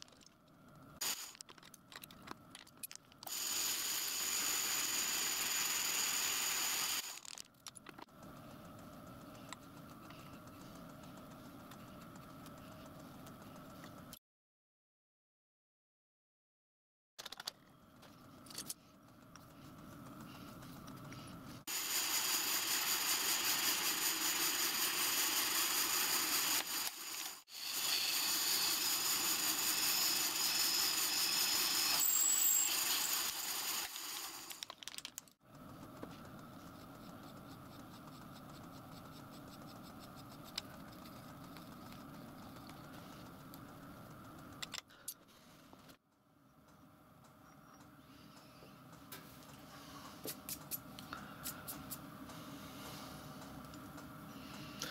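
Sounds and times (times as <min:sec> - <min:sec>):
drill press motor humming: 0:21.7 - 0:34.6.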